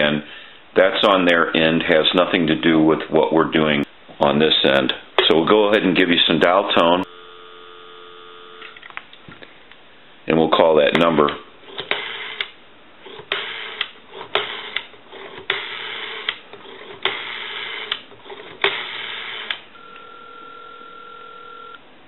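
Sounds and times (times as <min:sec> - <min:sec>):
steady telephone line tone: 0:07.0 - 0:08.9, 0:18.7 - 0:21.8.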